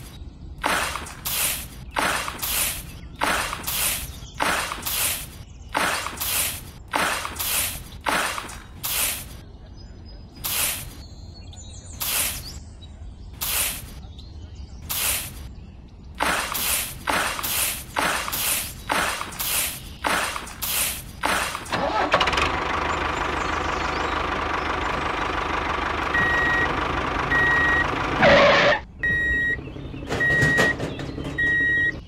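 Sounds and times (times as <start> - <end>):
hand shovel scraping sand: 0.6 - 9.4, 10.4 - 11.0, 13.4 - 14.0, 16.2 - 21.8.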